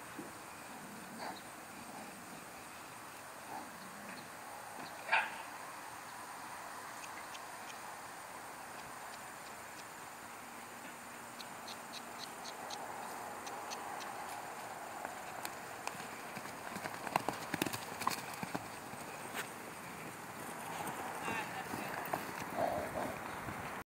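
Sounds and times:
outdoor hiss: 0.0 - 23.8
dog bark: 5.1 - 5.5.

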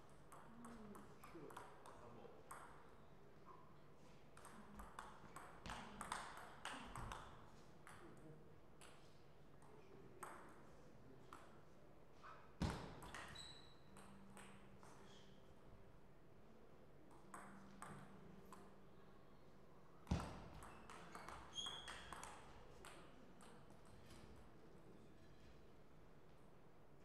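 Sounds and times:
table tennis ball bouncing: 4.4 - 8.0, 12.6 - 15.0, 17.1 - 18.6, 20.1 - 23.8
table tennis ball clicking in rally: 4.4 - 8.1, 12.9 - 15.0, 20.1 - 24.0.

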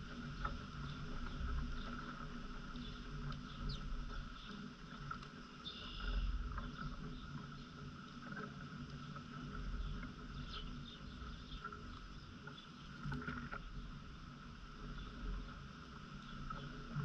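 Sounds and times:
faint bird chirps: 5.6 - 6.9.

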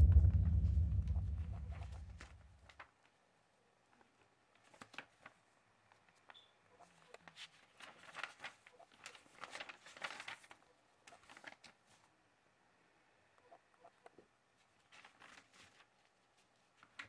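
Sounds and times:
notebook pages turning: 4.6 - 5.4, 7.2 - 11.8, 14.8 - 17.0.

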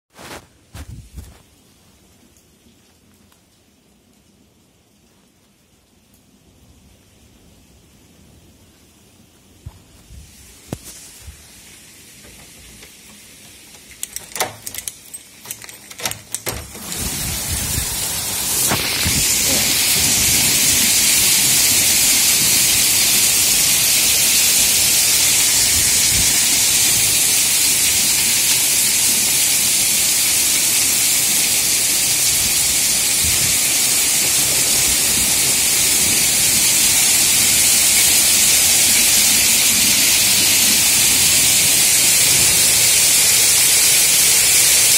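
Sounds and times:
heavy rain hissing: 3.5 - 15.5, 16.1 - 44.9.

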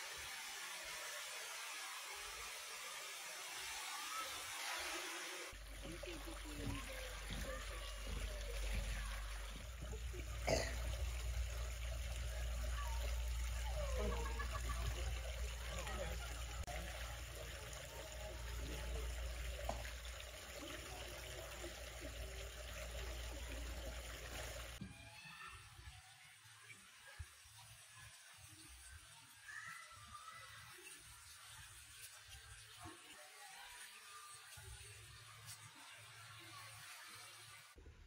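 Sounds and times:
water trickling: 5.5 - 24.8.

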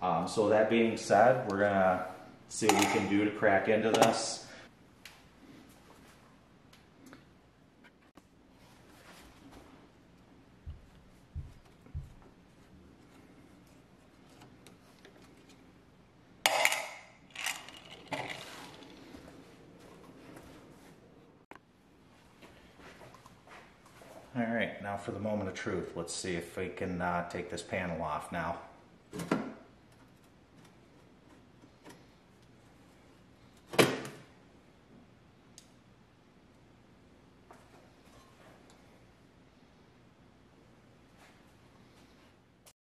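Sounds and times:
metal pieces clattering in a tin can: 16.5 - 18.8.

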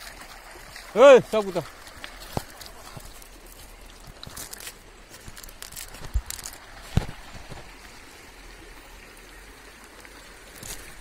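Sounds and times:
water trickling and dripping: 0.0 - 11.0.

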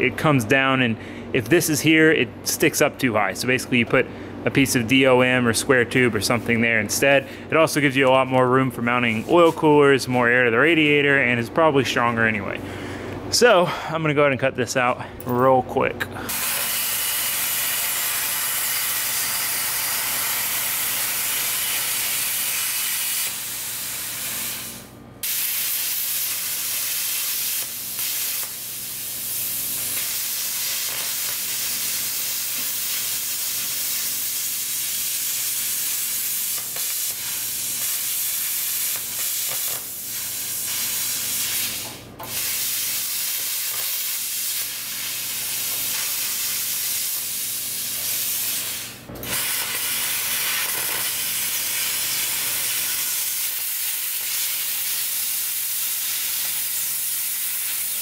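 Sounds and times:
plasma cutter hissing: 16.3 - 58.0.

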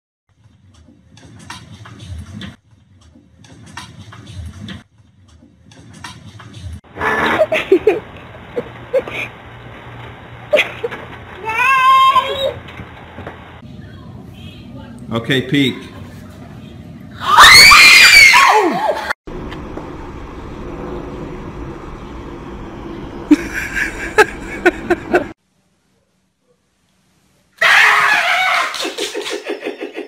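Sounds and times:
children screaming: 11.4 - 12.6, 17.2 - 19.2, 27.6 - 28.8.

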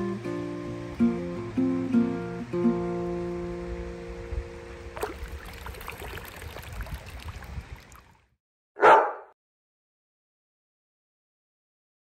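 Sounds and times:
acoustic guitar chord: 0.0 - 5.0
river water over rocks: 4.7 - 8.2.

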